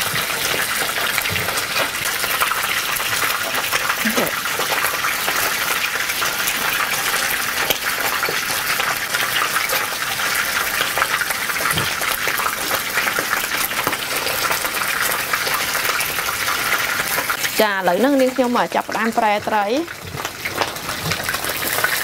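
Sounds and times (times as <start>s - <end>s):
hot oil sizzling with fish frying: 0.0s - 22.0s.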